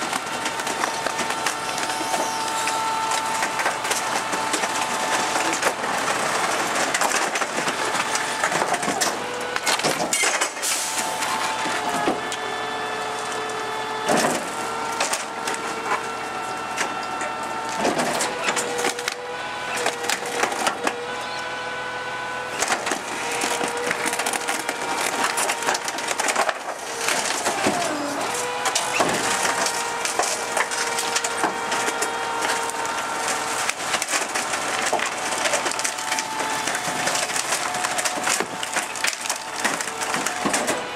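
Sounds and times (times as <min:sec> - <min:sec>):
wood cracking and splintering: 0:00.0 - 0:40.9
packer blade squealing: 0:00.8 - 0:05.6, 0:22.5 - 0:40.9.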